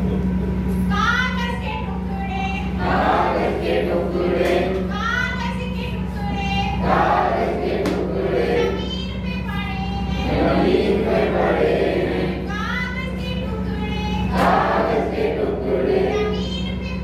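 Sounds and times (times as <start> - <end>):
steady low hum: 0.0 - 17.0
group of adults singing: 2.8 - 4.9, 6.8 - 8.8, 10.2 - 12.5, 14.3 - 16.4.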